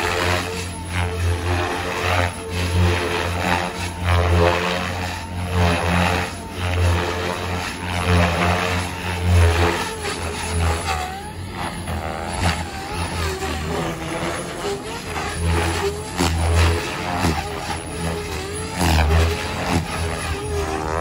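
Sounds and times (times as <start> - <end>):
electric motor whining: 0.0 - 21.0
helicopter rotor blades beating: 0.0 - 21.0.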